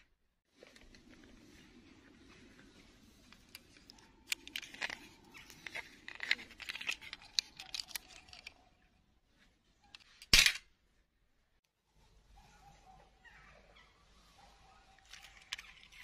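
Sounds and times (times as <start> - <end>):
plastic clicks and rustling: 3.3 - 8.7, 15.0 - 16.0.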